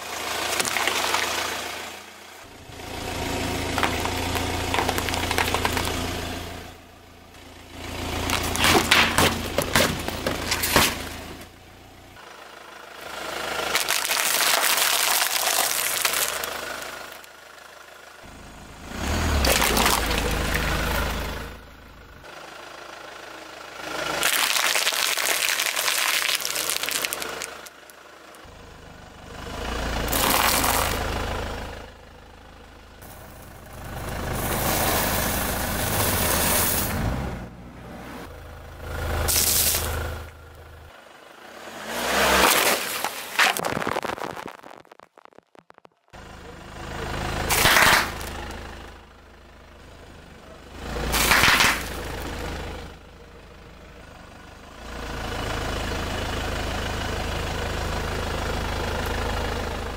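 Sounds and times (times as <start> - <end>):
car engine running: 0.0 - 59.9
tyre crushing food and objects: 0.4 - 1.6, 3.6 - 6.2, 8.2 - 11.5, 13.7 - 16.5, 19.4 - 20.6, 24.2 - 27.8, 30.1 - 31.0, 42.2 - 46.0, 47.5 - 48.4, 51.1 - 52.2.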